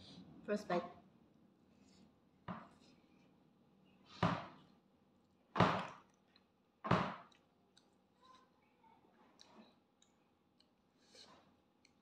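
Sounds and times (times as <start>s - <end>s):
person eating by hand: 4.6s - 12.0s.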